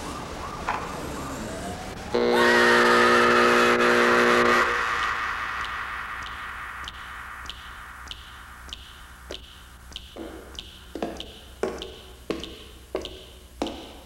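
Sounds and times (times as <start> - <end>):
low hum: 1.8 - 14.0
faint ticking: 4.8 - 14.0
footsteps on hard floor: 9.3 - 14.0.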